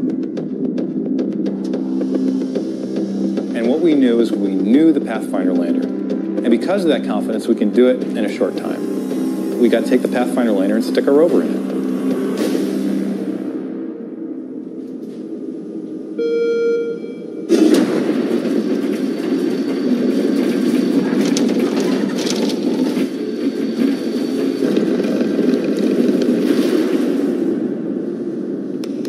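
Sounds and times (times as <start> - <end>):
loud dense mechanical noise: 0.0 - 16.1, 17.0 - 29.0
short beep: 16.2 - 17.5.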